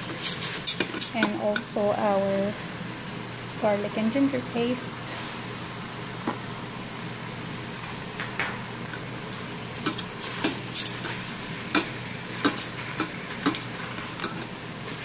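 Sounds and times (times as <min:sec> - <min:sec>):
spatula scraping against pot: 0:00.0 - 0:01.6
food sizzling in hot oil: 0:00.0 - 0:15.0.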